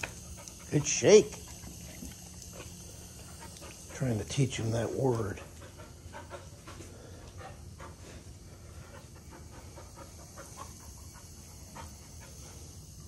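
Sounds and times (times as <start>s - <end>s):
puppy panting: 0.0s - 13.0s.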